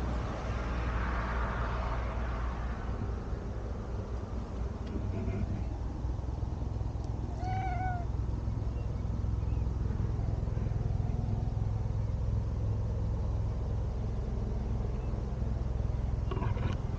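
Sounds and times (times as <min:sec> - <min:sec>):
steady low rumble: 0:00.0 - 0:16.9
cat meowing: 0:07.3 - 0:08.1.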